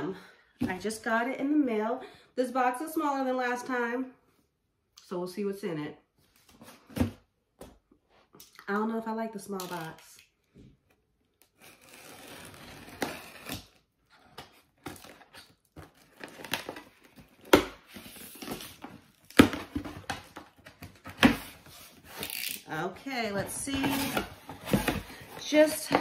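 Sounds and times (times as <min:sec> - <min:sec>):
cardboard and paper rustling: 0:23.2 - 0:26.0.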